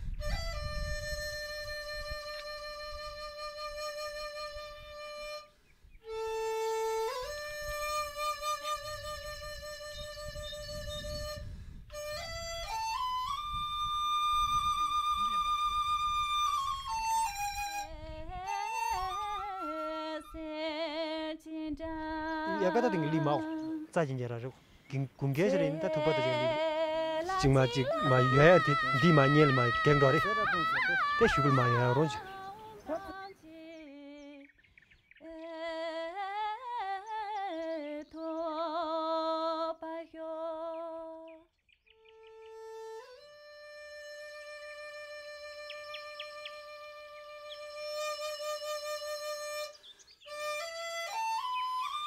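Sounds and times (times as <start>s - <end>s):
hummed melody: 0.0s - 24.3s, 25.2s - 52.0s
flute-like tone: 12.0s - 21.2s, 22.2s - 23.8s, 25.5s - 33.2s, 50.4s - 52.0s
person singing slow melody: 19.6s - 23.9s, 25.4s - 34.5s.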